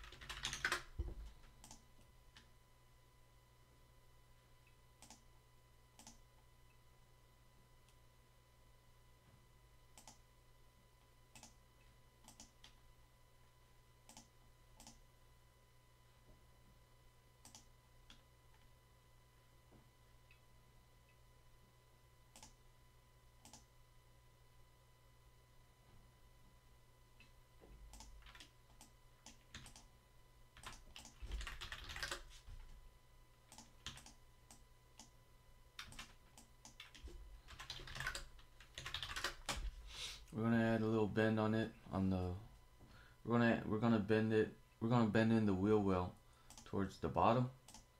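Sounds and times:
faint keyboard typing: 0.0s - 2.5s, 5.0s - 5.3s, 6.0s - 6.3s, 9.9s - 10.2s, 11.3s - 11.6s, 12.2s - 12.8s, 14.0s - 15.0s, 17.4s - 18.7s, 22.3s - 22.6s, 23.4s - 23.7s, 27.2s - 29.9s, 30.5s - 32.8s, 33.4s - 35.2s, 35.8s - 39.8s, 46.4s - 46.8s, 47.6s - 47.9s
low electrical hum: 0.0s - 47.9s
computer mouse clicks: 1.6s - 1.8s, 5.0s - 5.2s, 6.0s - 6.2s, 10.0s - 10.2s, 11.3s - 11.6s, 12.2s - 12.8s, 14.1s - 15.0s, 17.4s - 18.2s, 22.3s - 22.6s, 23.4s - 23.7s, 27.9s - 29.9s, 30.6s - 32.2s, 33.5s - 35.1s, 46.5s - 46.7s, 47.7s - 47.9s.

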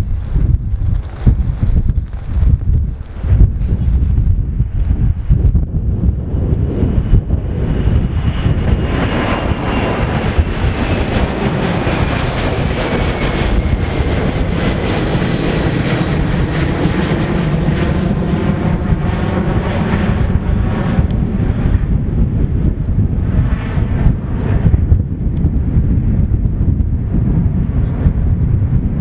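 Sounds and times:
jet engines at climb power: 0.0s - 29.0s.

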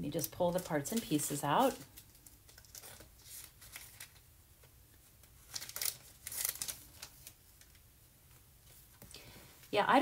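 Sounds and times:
paper rustling and sliding: 2.6s - 4.2s.

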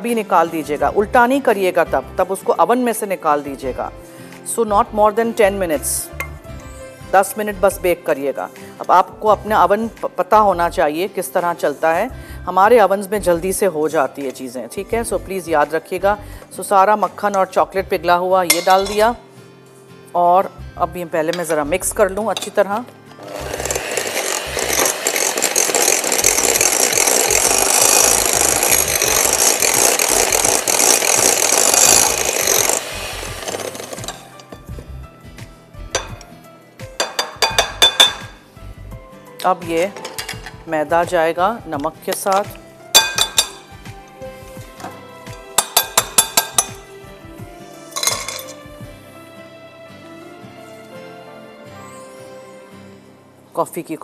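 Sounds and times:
soft background music: 0.0s - 54.0s
utensil clinking on glass bowl: 18.5s - 19.1s, 37.0s - 38.3s, 42.1s - 43.6s, 45.3s - 46.8s, 48.0s - 48.6s
electric mixer running: 23.2s - 34.4s.

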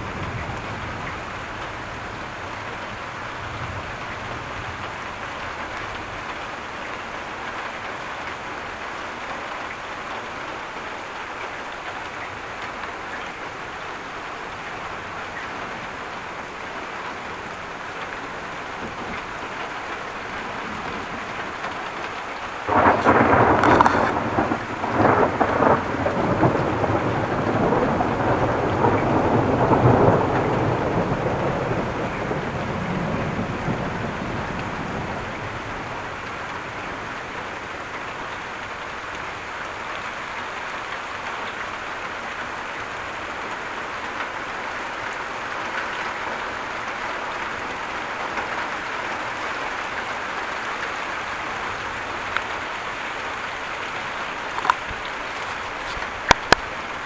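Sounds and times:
thunder rumbling: 0.0s - 6.7s, 14.9s - 39.2s
heavy rain: 0.0s - 57.0s.

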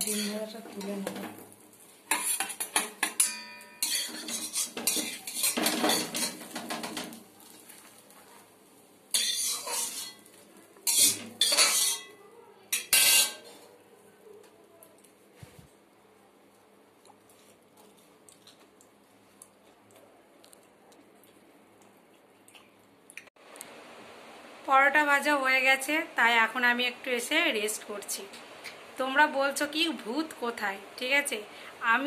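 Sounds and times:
spatula scraping metal pan: 0.0s - 0.5s, 2.1s - 6.6s, 9.1s - 12.1s, 12.7s - 13.6s.

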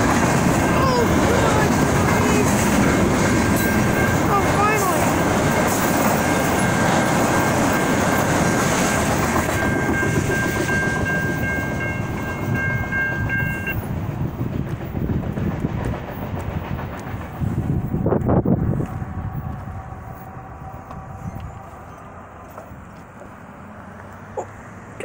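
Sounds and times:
steady high ringing tone: 0.0s - 14.0s
freight train clattering rumble: 0.0s - 23.4s.

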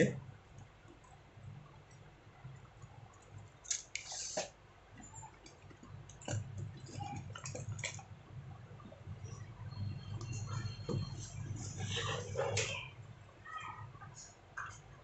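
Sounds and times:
faint low hum: 4.6s - 15.0s.

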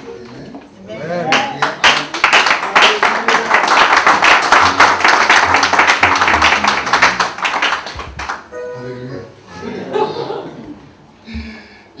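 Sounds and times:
audience applauding: 1.3s - 8.5s.

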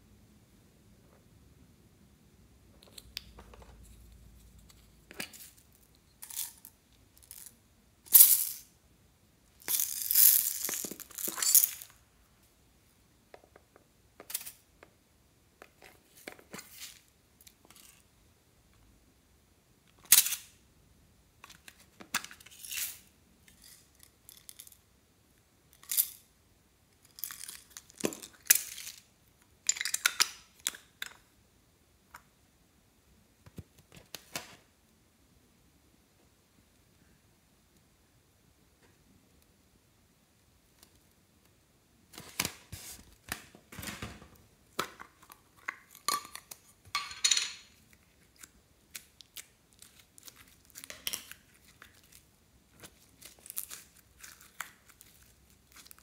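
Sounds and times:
decorations rustling and crinkling: 2.7s - 8.7s, 9.5s - 12.6s, 13.3s - 18.1s, 21.4s - 24.8s, 26.9s - 31.3s, 40.6s - 56.0s.

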